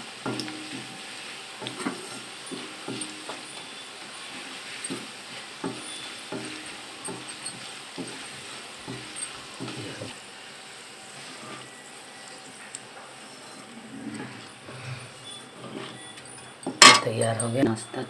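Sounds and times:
food sizzling in hot oil: 0.0 - 18.0
metal spoon scraping a pan: 0.2 - 9.8, 13.3 - 17.6.

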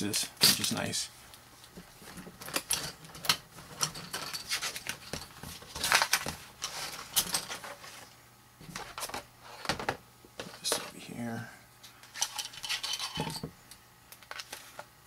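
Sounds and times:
plastic sprues clattering: 2.1 - 8.1.

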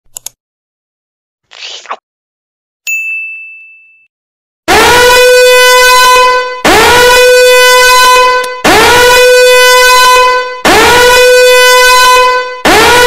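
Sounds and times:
bright ringing ding: 2.9 - 4.1.

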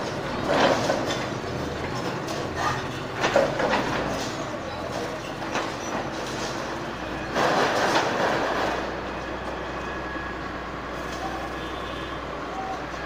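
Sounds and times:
falling debris crash: 0.0 - 4.5, 5.5 - 9.0
excavator engine running: 0.0 - 13.0.

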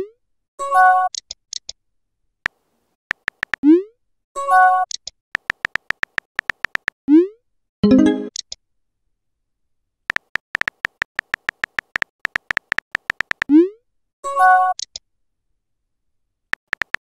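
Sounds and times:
keyboard tap clicks: 3.1 - 3.6, 5.4 - 7.0, 10.1 - 13.5, 16.6 - 17.0
electronic alert chime: 7.8 - 8.3.

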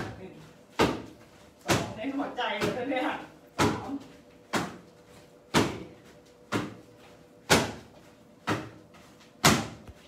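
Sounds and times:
knee strikes thudding into pads: 7.4 - 8.8, 9.4 - 9.8.

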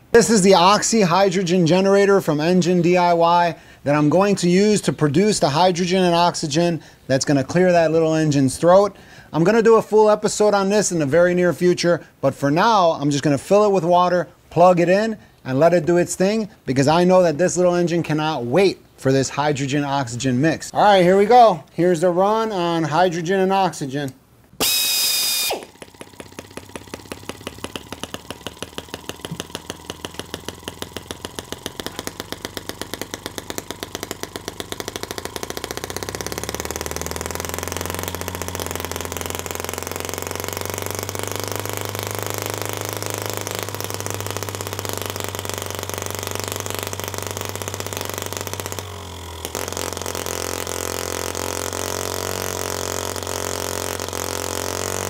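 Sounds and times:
small engine running: 24.6 - 55.0.

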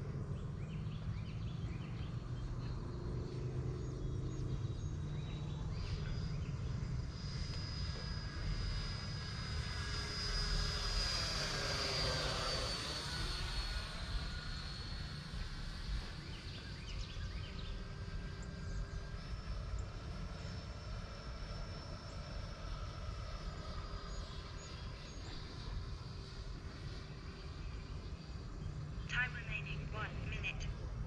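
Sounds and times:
constant low rumble: 0.0 - 31.0
model jet whining overhead: 0.0 - 31.0.

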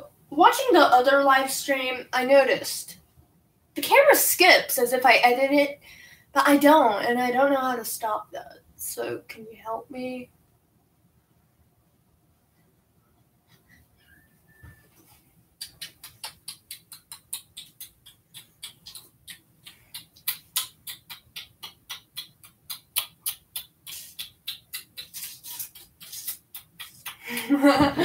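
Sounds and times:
rapid sharp clicking: 15.6 - 27.5.

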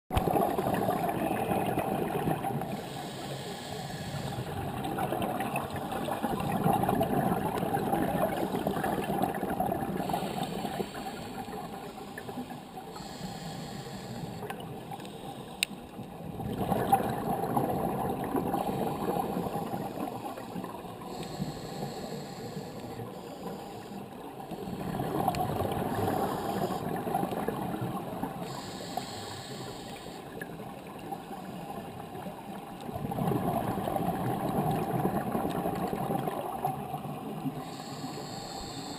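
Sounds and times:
underwater hiss: 0.3 - 5.7, 8.2 - 15.9, 18.1 - 30.5, 37.5 - 38.9
faint click: 14.4 - 16.1.

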